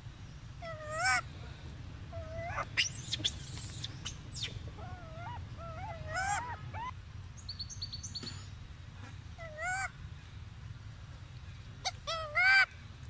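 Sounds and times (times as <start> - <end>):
baby monkey crying: 0.6 - 1.2, 2.1 - 3.9, 4.8 - 7.0, 9.4 - 9.9, 11.8 - 12.7.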